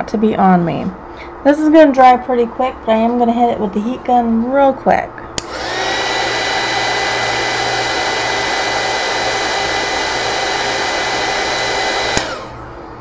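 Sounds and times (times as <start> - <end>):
heat gun switch click: 5.4 - 5.6, 12.1 - 12.5
heat gun blowing air: 5.4 - 12.6.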